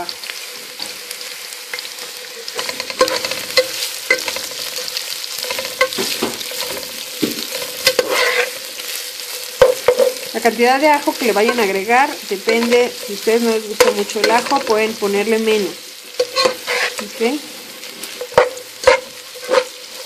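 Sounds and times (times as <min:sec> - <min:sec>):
onion sizzling in oil: 0:00.0 - 0:20.0
metal tongs knocking pot: 0:02.6 - 0:04.8, 0:05.4 - 0:08.5, 0:09.6 - 0:10.4, 0:11.4 - 0:15.0, 0:16.2 - 0:17.1, 0:18.2 - 0:19.7.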